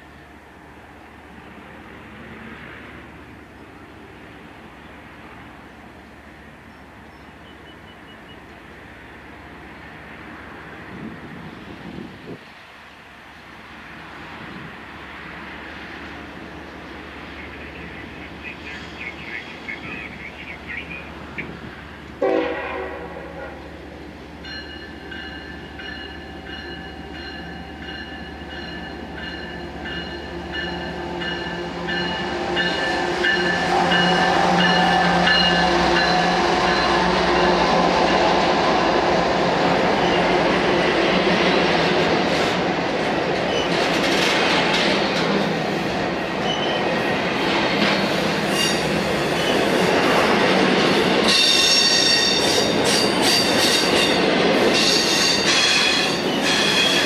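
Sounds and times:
train wheels rumbling on rails: 0:00.0 - 0:57.0
locomotive horn blast: 0:22.2 - 0:23.7.

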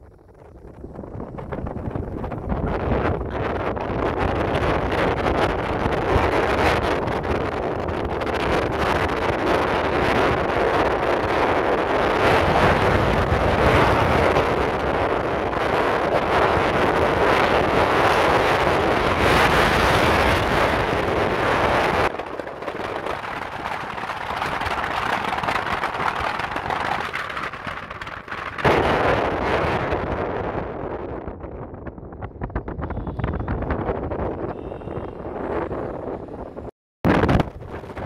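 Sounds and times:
moving vehicle running noise: 0:00.0 - 0:38.0
wind buffeting microphone: 0:00.0 - 0:38.0.

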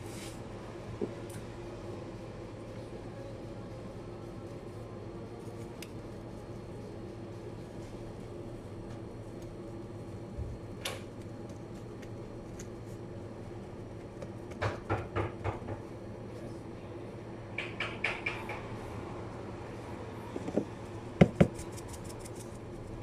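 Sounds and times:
steady hum: 0:00.0 - 0:23.0
knocks and clatter at counter: 0:14.5 - 0:15.8, 0:17.6 - 0:18.7.

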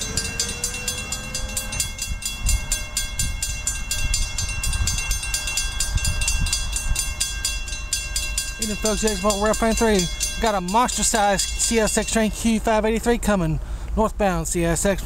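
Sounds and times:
crossing bell ringing rapidly: 0:00.0 - 0:13.2.

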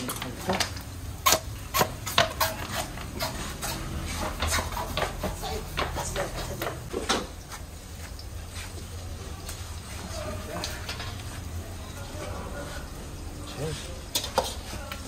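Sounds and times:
dishes clinking and knocking: 0:00.0 - 0:07.4.

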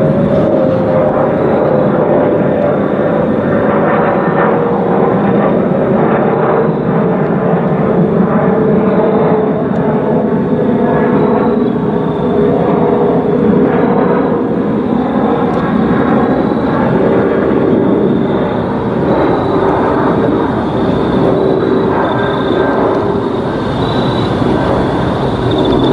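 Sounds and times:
jet airliner flying over: 0:00.0 - 0:25.9
whistling tone: 0:11.0 - 0:12.9, 0:14.2 - 0:25.9.

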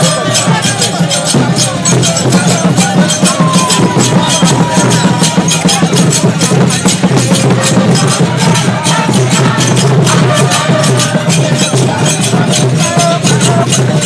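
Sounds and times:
fast ceremonial drumming: 0:00.0 - 0:14.0.

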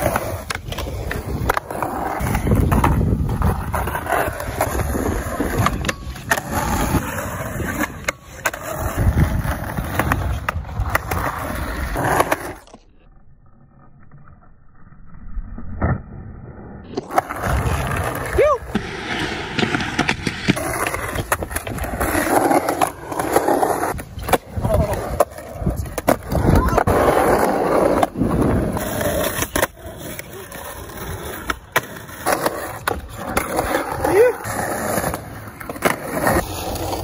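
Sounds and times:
skateboard clacking against ground: 0:00.0 - 0:03.5, 0:04.2 - 0:11.2, 0:18.6 - 0:28.2
skateboard wheels rolling on concrete: 0:00.0 - 0:37.0.

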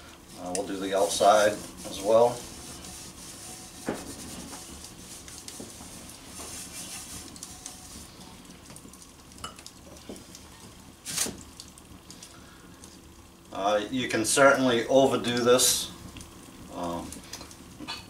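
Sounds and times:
wood fire crackling: 0:00.0 - 0:18.0
cloth wiping pan: 0:00.3 - 0:08.2.

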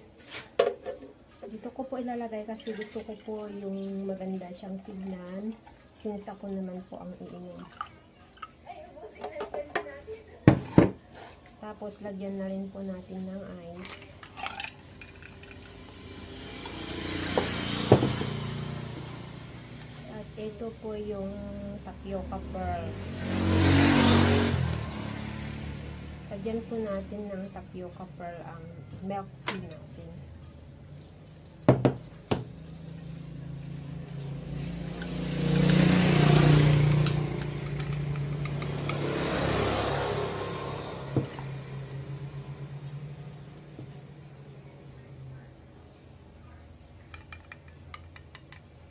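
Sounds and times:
motor vehicle passing: 0:11.8 - 0:48.9.

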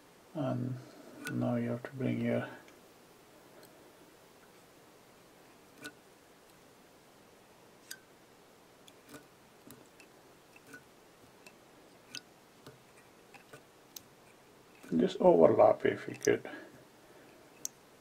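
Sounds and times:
faint sharp clicks: 0:17.6 - 0:17.8.

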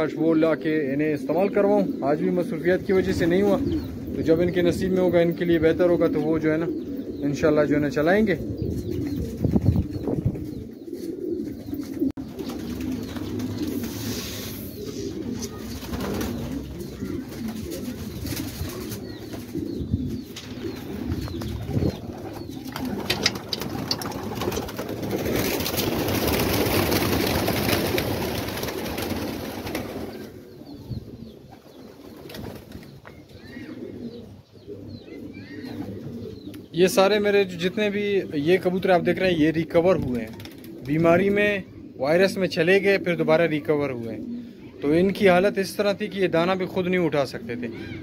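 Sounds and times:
pigeons cooing: 0:00.0 - 0:48.0.

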